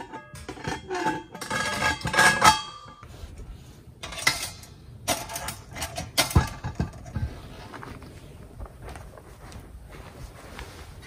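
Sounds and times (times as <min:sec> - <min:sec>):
metal pots scraping and clinking: 0:00.0 - 0:03.2, 0:04.0 - 0:07.7.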